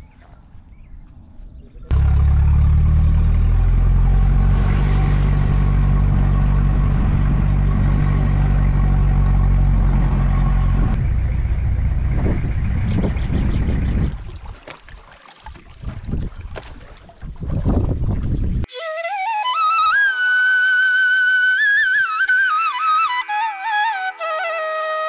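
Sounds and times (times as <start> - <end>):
road and wind noise: 0.4 - 14.5
vehicle engine running: 1.9 - 14.2.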